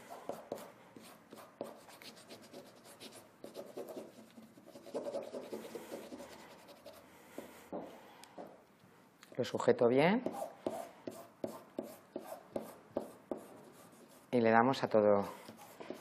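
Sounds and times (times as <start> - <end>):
tool rubbing paper on canvas: 0.0 - 7.0.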